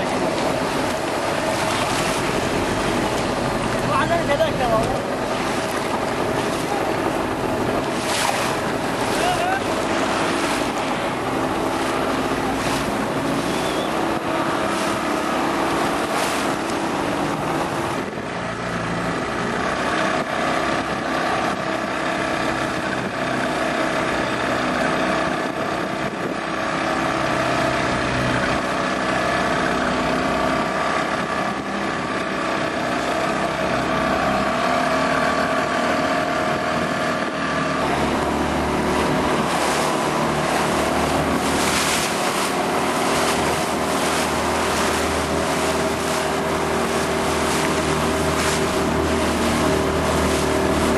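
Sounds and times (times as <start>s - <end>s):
motorboat engine running: 0.0s - 50.9s
water rushing and splashing: 0.0s - 50.9s
wind on microphone: 4.9s - 23.5s, 24.8s - 26.9s.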